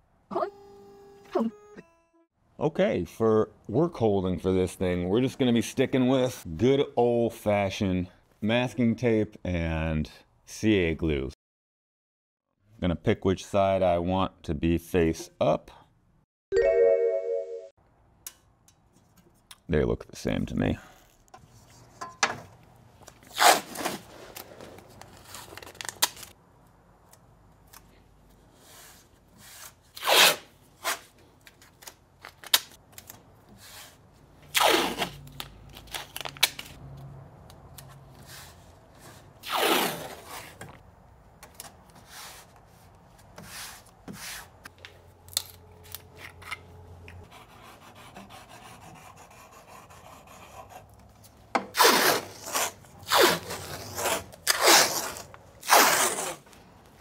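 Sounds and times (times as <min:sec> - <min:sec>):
tape ripping off roll: 0:39.4 - 0:40.6, 0:51.7 - 0:56.5
hand rubbing tape on metal: 0:51.8 - 0:56.5.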